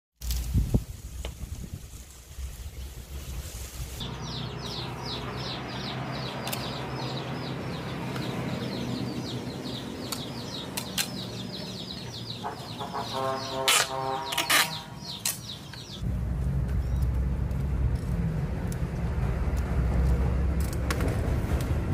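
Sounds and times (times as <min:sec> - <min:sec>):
small bird chirping: 0:02.4 - 0:16.0, 0:16.7 - 0:17.2
chicken calling: 0:11.4 - 0:15.3
short loud rasping noises: 0:12.8 - 0:15.2.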